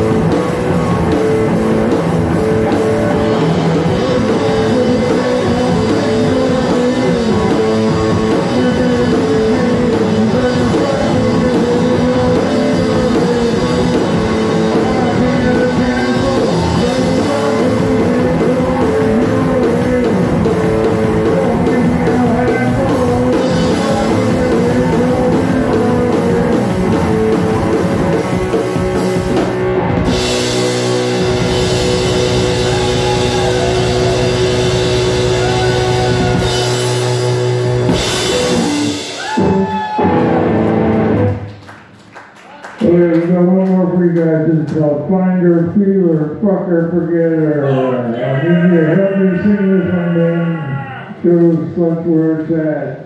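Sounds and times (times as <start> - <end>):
live heavy rock band: 0.0 - 41.5.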